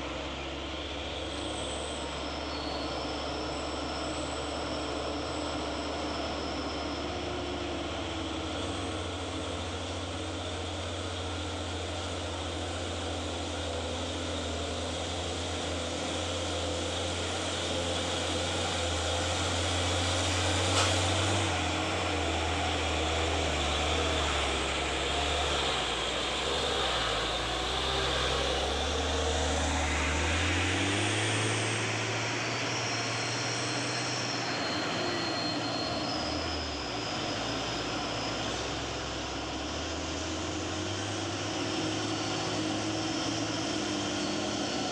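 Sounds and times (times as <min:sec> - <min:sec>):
diesel truck engines labouring: 0:00.0 - 0:44.9.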